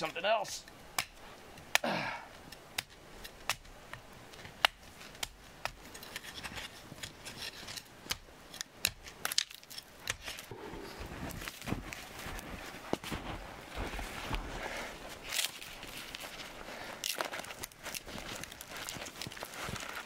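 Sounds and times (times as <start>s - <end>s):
twigs snapping: 0.6s - 10.5s, 15.2s - 20.0s.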